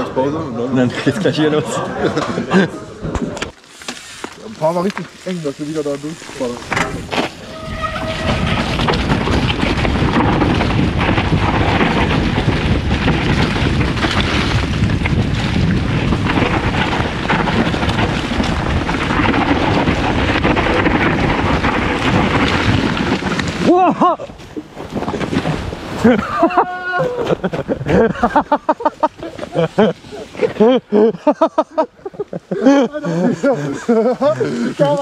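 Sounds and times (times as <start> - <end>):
bike knocks and rattles: 3.1 - 23.7
wind rush on microphone: 6.6 - 30.6.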